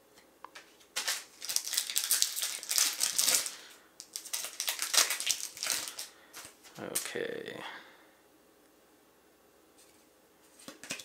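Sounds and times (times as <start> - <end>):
card pack rustling and crinkling: 0.6 - 7.1.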